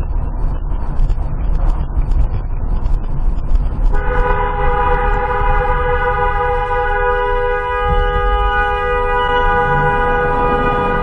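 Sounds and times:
road and engine rumble: 0.0s - 11.0s
two-tone vehicle horn blast: 4.0s - 11.0s.

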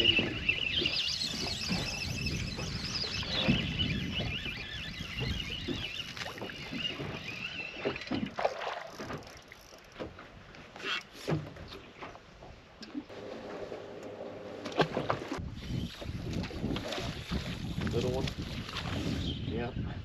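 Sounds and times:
wind on microphone: 0.0s - 7.6s, 15.0s - 20.0s
water slapping boat hull: 0.0s - 19.4s
fish splashing: 5.2s - 9.6s.

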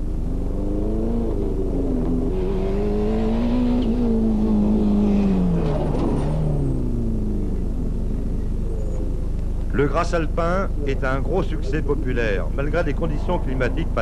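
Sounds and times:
tyre and road noise: 0.0s - 14.0s
rally car engine revving past: 0.2s - 7.6s.

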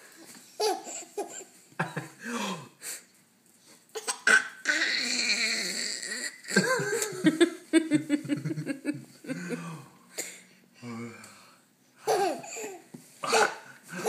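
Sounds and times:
baby laughing: 0.6s - 1.5s, 4.0s - 7.2s, 12.0s - 12.9s
baby squealing: 4.0s - 6.4s
baby cooing: 4.0s - 6.5s.

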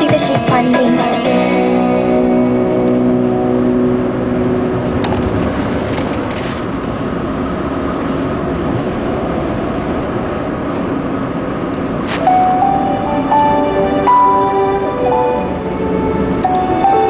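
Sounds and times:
guitar music: 0.0s - 6.2s, 12.2s - 17.0s
car engine and tyre rumble: 1.3s - 17.0s.

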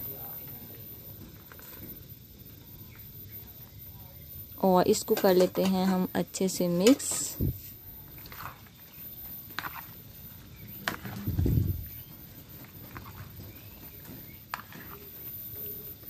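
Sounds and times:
spoon stirring food squelching: 4.8s - 16.0s.

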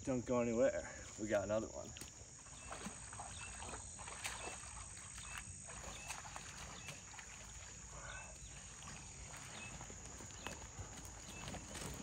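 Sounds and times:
footsteps on dry twigs and leaves: 9.6s - 12.0s.

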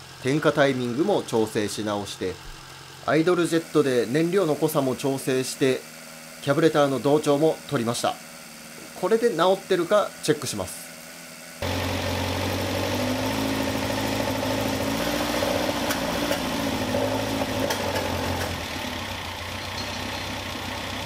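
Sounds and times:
engine popping: 11.6s - 18.9s
car engine idling: 11.6s - 21.0s.

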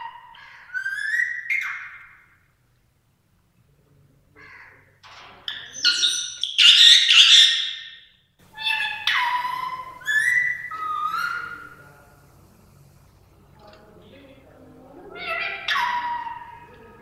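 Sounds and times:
parakeet screeching: 0.0s - 2.2s, 5.5s - 11.8s, 15.2s - 16.7s.

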